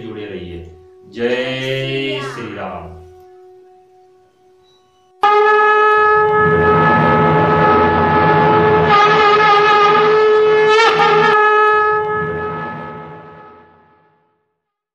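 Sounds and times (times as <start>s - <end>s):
conch shell blast: 0.0s - 14.5s.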